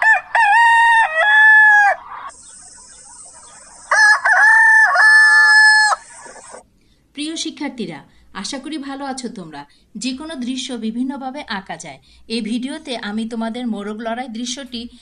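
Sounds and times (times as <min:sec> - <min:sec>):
rooster crowing: 0:00.0 - 0:06.6
steady high hiss: 0:02.3 - 0:04.3, 0:05.7 - 0:06.6.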